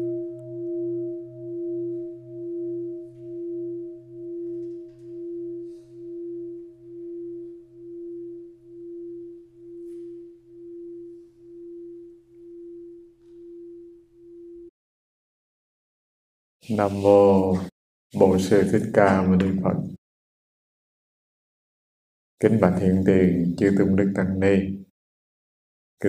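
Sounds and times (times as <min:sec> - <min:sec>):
singing bowl ringing: 0:00.0 - 0:14.7.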